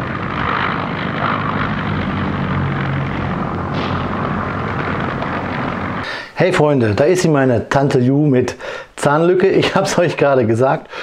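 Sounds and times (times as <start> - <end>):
propeller aircraft engines droning: 0.0 - 6.5.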